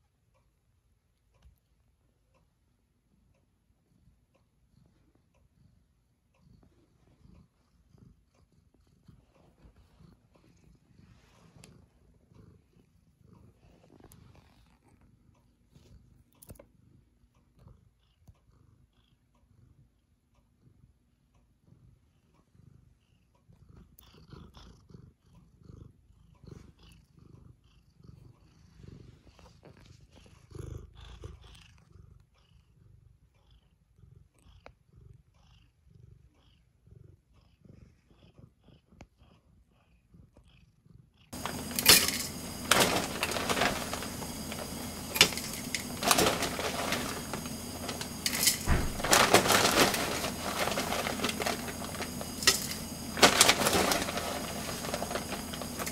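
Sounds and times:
cat purring: 3.0s - 55.9s
rustling: 41.4s - 55.9s.

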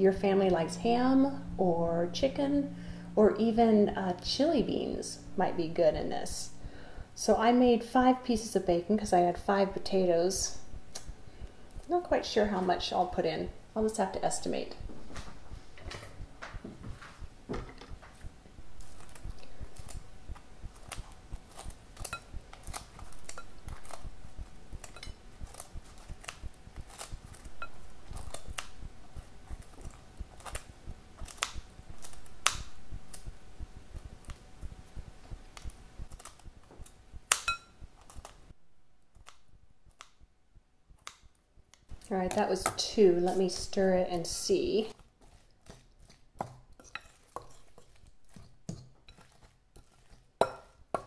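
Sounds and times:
kitchen shears snipping bacon: 9.8s - 13.3s, 18.8s - 38.4s, 41.0s - 51.0s.

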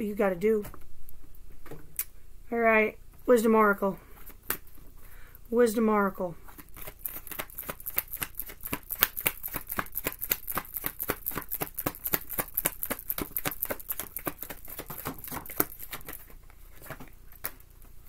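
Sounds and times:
cards being shuffled: 6.5s - 17.6s.

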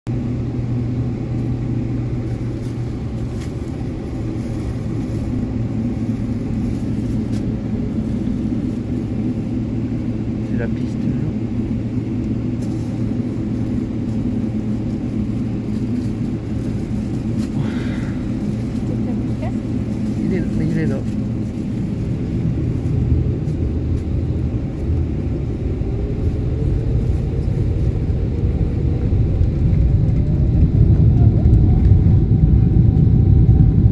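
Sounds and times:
jet engine drone in cabin: 0.1s - 33.9s.

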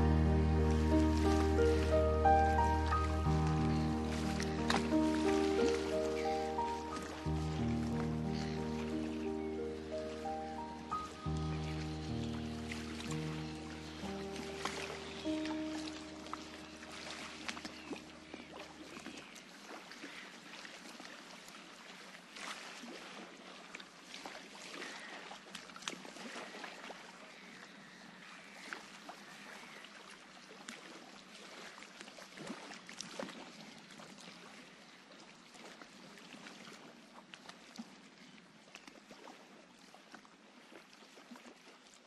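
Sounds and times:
held music chord: 0.0s - 18.6s.

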